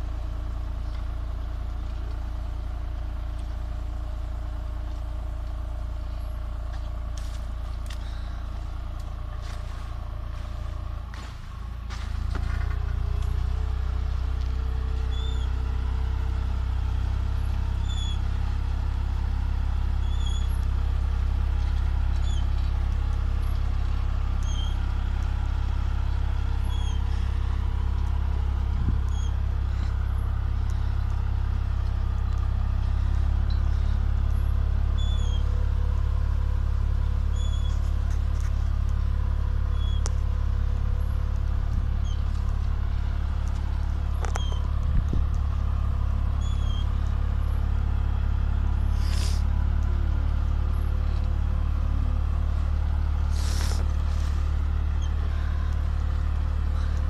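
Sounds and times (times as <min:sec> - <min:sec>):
tractor engine droning: 0:00.0 - 0:57.0
short high squeak: 0:17.8 - 0:18.2, 0:20.0 - 0:20.6, 0:24.4 - 0:24.8, 0:26.6 - 0:27.0, 0:29.1 - 0:29.4, 0:35.0 - 0:35.5, 0:37.3 - 0:37.9, 0:39.7 - 0:40.0, 0:44.2 - 0:44.7, 0:46.4 - 0:46.9.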